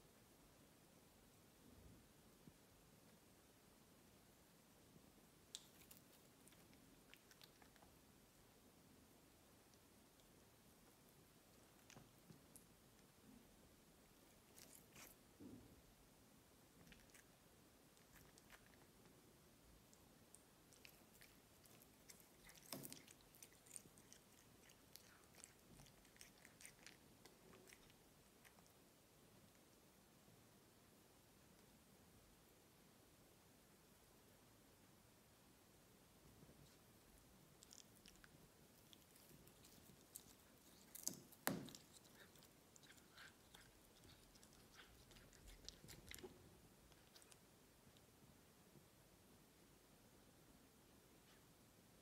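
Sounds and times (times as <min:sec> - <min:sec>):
cat chewing grass: 0:05.5 - 0:08.1, 0:14.1 - 0:15.5, 0:16.7 - 0:19.2, 0:19.8 - 0:28.8, 0:37.4 - 0:48.1.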